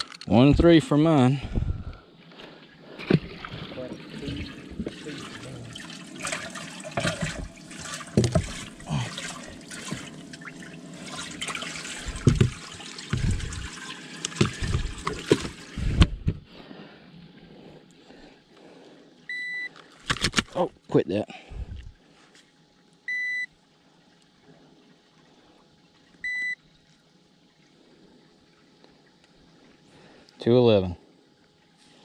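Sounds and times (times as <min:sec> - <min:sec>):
water running and splashing: 0:02.8 - 0:15.9.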